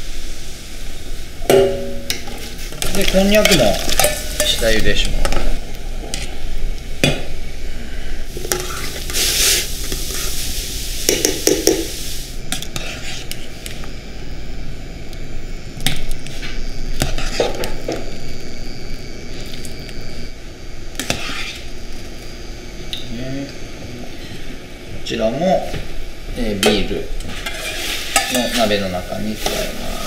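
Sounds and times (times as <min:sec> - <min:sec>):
water boiling and bubbling: 0:00.0 - 0:23.8.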